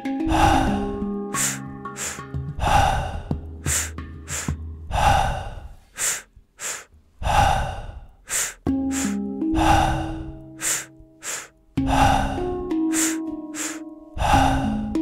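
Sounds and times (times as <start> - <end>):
soft ambient music: 0.0 - 5.5, 8.7 - 15.0
long exhale through mouth: 0.3 - 14.9
sharp inhales: 0.3 - 14.9.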